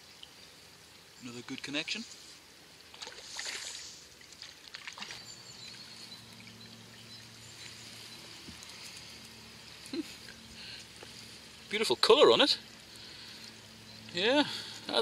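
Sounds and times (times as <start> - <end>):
river trickling: 0.0 - 15.0
water splashing: 2.7 - 13.4.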